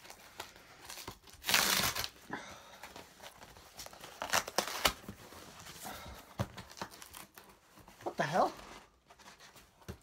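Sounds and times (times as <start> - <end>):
cardboard ripping: 0.0 - 2.2, 3.2 - 5.8, 6.5 - 7.6
cardboard crinkling: 2.8 - 10.0.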